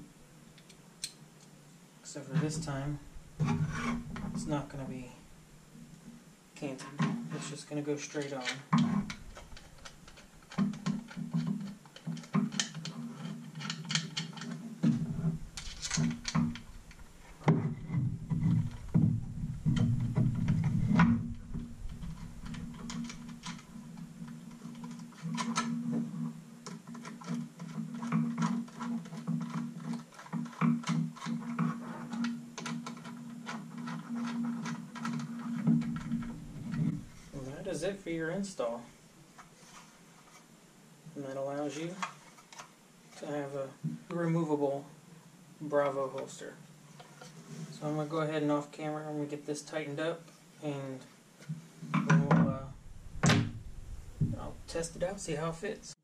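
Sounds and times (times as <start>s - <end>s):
clicks of plastic parts and screws: 8.4s - 17.0s.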